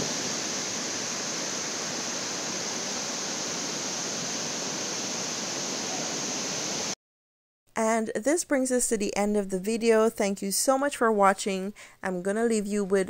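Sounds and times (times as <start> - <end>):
waterfall rushing over boulders: 0.0 - 7.0.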